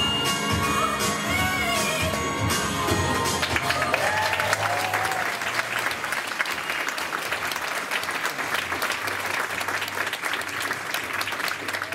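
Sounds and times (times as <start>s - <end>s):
audience applauding: 3.3s - 11.9s.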